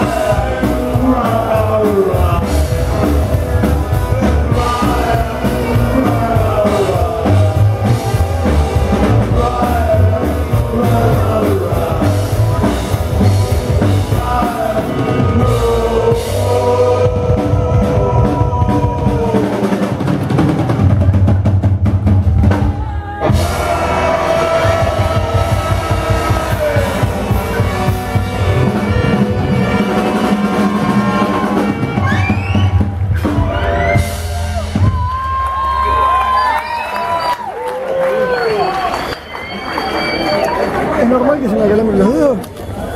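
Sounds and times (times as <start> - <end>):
upright double bass: 0.0 - 19.4, 23.2 - 35.0
lead vocals singing: 0.0 - 20.8, 22.8 - 34.3
drums: 0.0 - 42.9.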